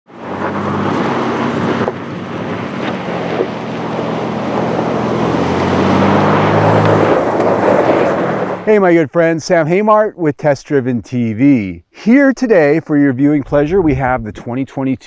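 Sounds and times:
wind on microphone: 0:13.4 - 0:14.7.

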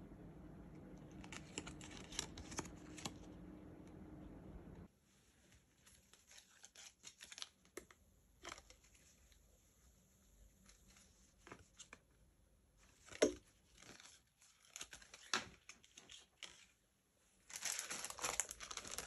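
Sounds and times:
background hum: 0:00.0 - 0:05.9
packaging crinkling and tearing: 0:01.0 - 0:03.4, 0:05.8 - 0:09.1, 0:13.0 - 0:16.8, 0:17.5 - 0:19.0.

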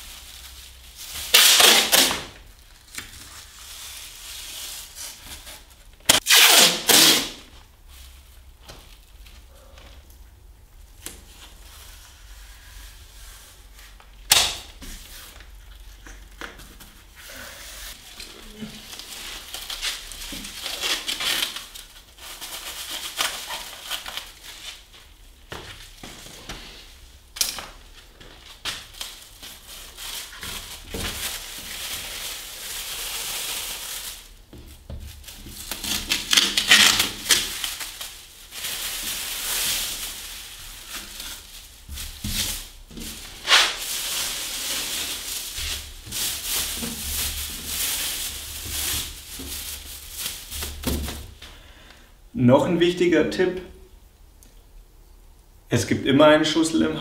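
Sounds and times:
plastic film crinkling: 0:00.0 - 0:10.0, 0:17.8 - 0:26.4, 0:27.4 - 0:51.5.

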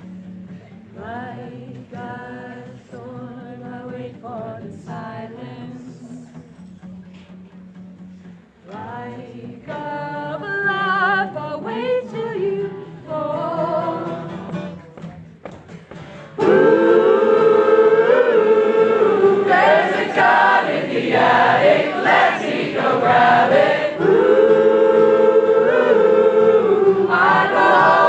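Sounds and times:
acoustic guitar: 0:00.0 - 0:28.0
voices singing choir-like harmonies: 0:16.4 - 0:28.0.

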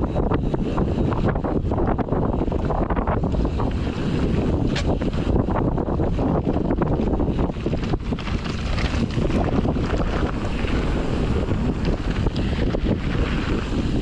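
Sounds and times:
wind buffeting microphone: 0:00.0 - 0:14.0
bike clicks and rattles: 0:00.1 - 0:14.0
tyres rumbling on dirt: 0:00.2 - 0:14.0.

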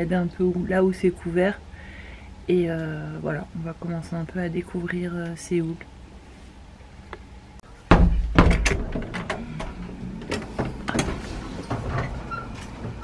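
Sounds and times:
door thud: 0:07.9 - 0:09.3.

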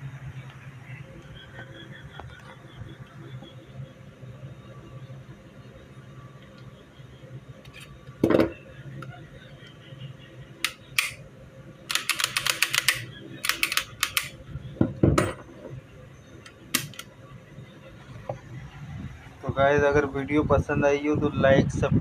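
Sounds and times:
pistol parts clicking on wooden table: 0:10.7 - 0:11.2, 0:11.9 - 0:14.3, 0:16.8 - 0:17.0.

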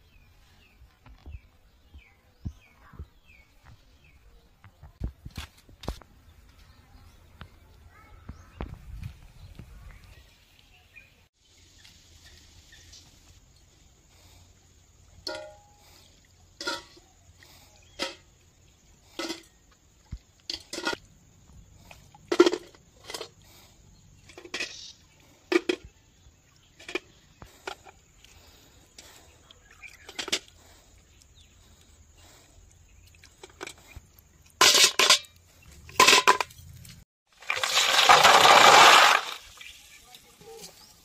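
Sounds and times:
shells clinking into metal bucket: 0:34.6 - 0:36.6
shells rattling in bucket: 0:35.9 - 0:36.6, 0:37.5 - 0:39.6.

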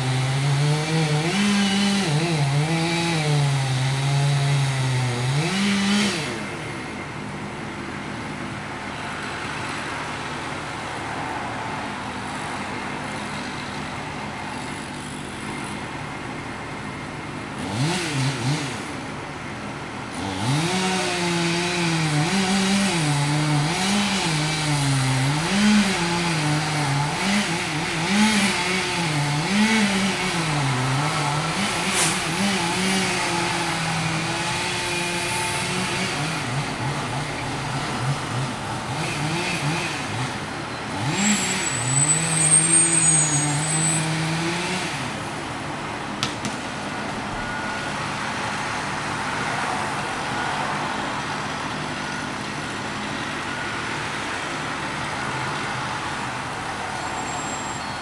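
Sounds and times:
chainsaw cutting wood: 0:00.0 - 0:06.6, 0:17.6 - 0:19.0, 0:20.1 - 0:37.2, 0:38.0 - 0:45.4, 0:46.2 - 0:46.8.

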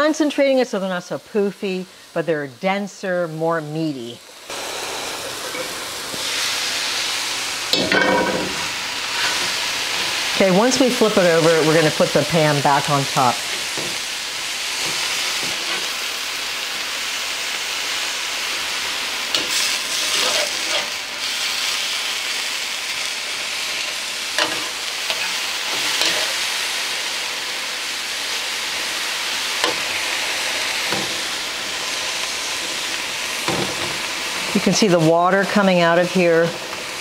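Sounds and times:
mushrooms sizzling in oil: 0:00.0 - 0:37.0
metal spatula scraping pan: 0:19.3 - 0:21.0, 0:24.4 - 0:26.4.

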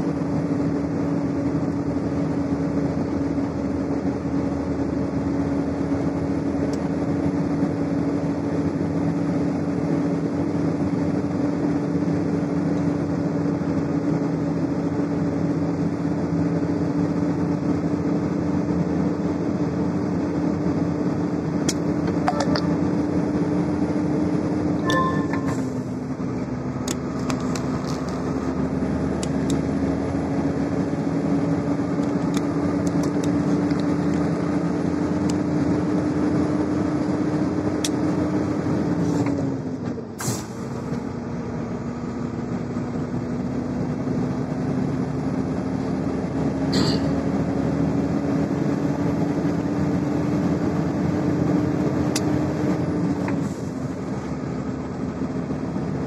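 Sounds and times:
road and tyre noise: 0:00.0 - 0:56.0
truck engine running: 0:00.0 - 0:56.0.

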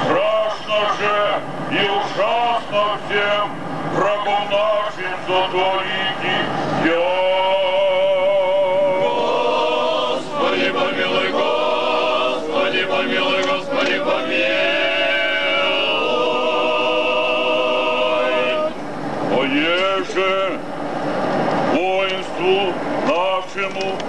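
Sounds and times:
voices chanting long held notes: 0:00.0 - 0:18.8.

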